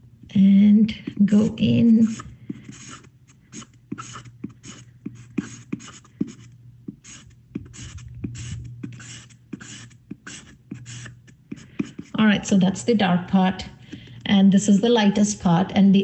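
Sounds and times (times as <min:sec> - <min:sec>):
pencil scratching on paper: 0:01.0 - 0:12.6.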